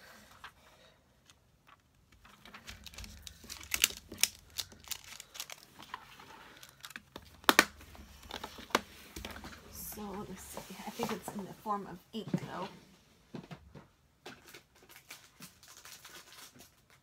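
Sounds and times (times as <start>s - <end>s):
plastic crinkling: 1.6s - 9.6s, 14.4s - 17.0s.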